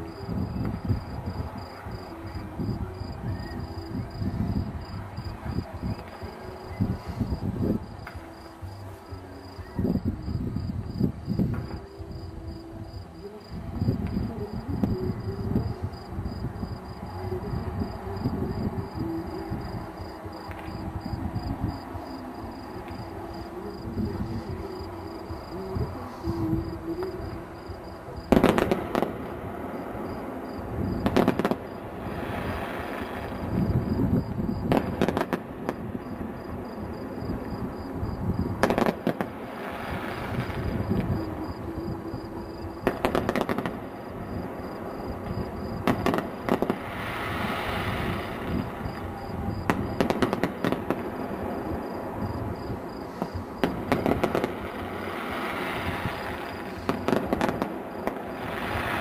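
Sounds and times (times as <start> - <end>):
firework crackling: 13.2 - 59.0.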